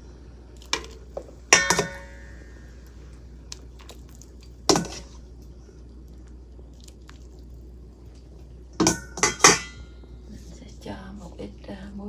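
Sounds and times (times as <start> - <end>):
soft wet squelches: 2.4 - 8.7.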